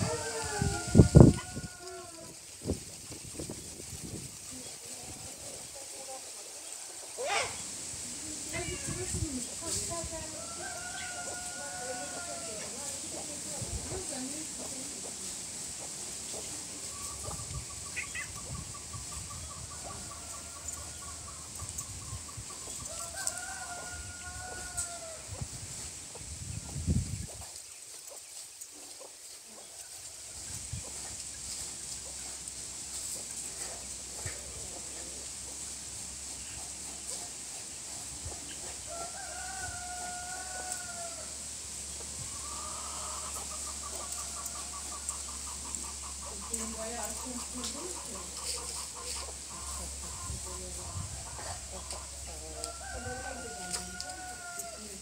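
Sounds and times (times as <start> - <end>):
rooster crowing: 0.0 - 2.4, 10.3 - 12.8, 22.8 - 25.3, 38.8 - 41.4, 52.3 - 55.0
chicken clucking: 8.5 - 41.2, 41.9 - 55.0.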